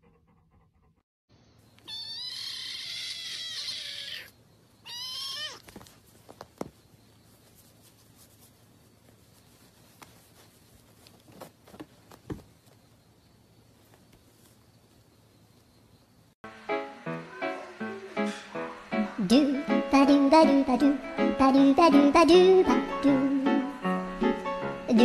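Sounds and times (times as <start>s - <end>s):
kitten mewing: 1.8s - 5.7s
faint taps and rustles: 5.6s - 13.0s, 13.7s - 15.1s.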